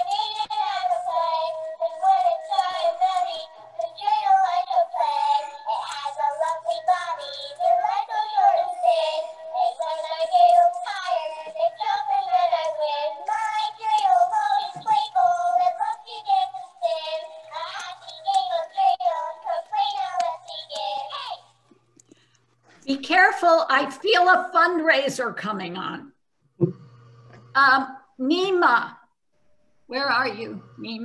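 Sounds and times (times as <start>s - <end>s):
toy singing in electronic voice: 0.0s - 21.5s.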